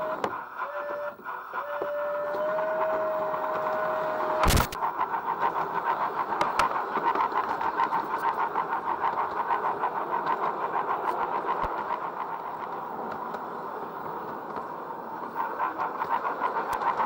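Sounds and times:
model train running on track: 0.0 - 17.0.

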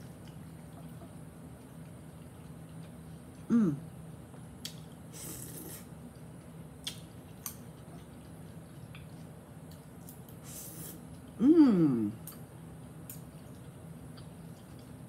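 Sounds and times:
chewing crispy food: 0.0 - 11.4, 12.2 - 15.0
low steady hum: 0.0 - 15.0
crunchy slurping: 5.1 - 6.0.

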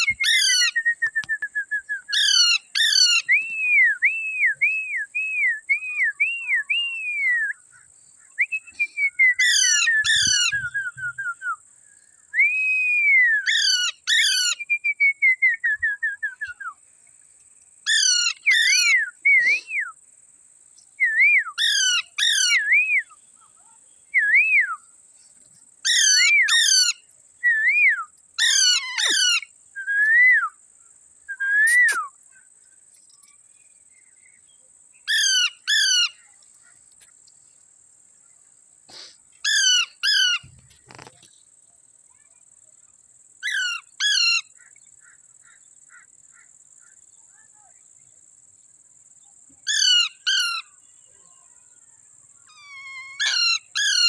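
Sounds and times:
parakeets calling: 2.2 - 3.3, 17.9 - 19.0, 21.6 - 22.6, 25.9 - 27.0, 28.4 - 29.5, 35.1 - 36.3, 39.4 - 40.6, 49.7 - 50.8, 52.5 - 54.0.

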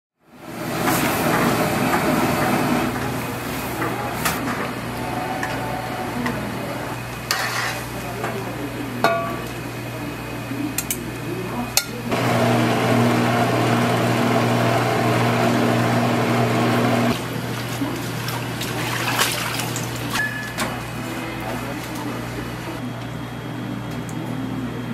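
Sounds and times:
noodle machine humming: 12.1 - 20.1
water sloshing in a strainer: 17.4 - 20.6.

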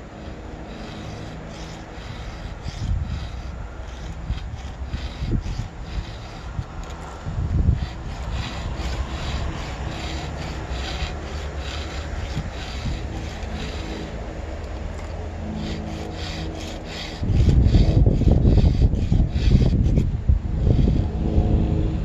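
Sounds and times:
file rasping on chainsaw chain: 0.0 - 21.1
loud low rumble: 12.0 - 22.0.

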